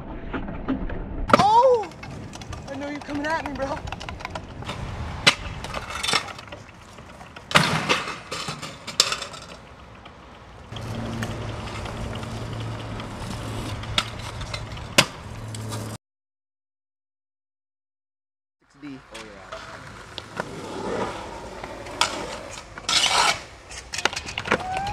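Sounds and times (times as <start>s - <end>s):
scooter deck clacking: 1.3s - 15.9s, 19.1s - 24.9s
scooter wheels rolling on concrete: 1.3s - 16.0s, 18.8s - 24.9s
low hum: 10.6s - 16.0s.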